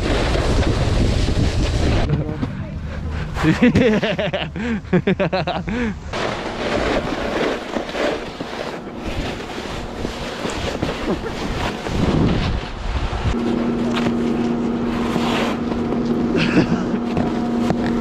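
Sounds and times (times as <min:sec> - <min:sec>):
snowboard sliding over snow: 0:00.0 - 0:02.4, 0:03.3 - 0:18.0
wind rushing over microphone: 0:00.0 - 0:02.4, 0:09.0 - 0:13.8.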